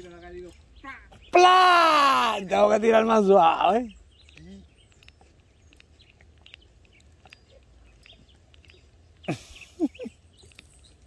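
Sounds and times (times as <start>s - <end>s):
faint bird chirps: 2.4s - 11.0s.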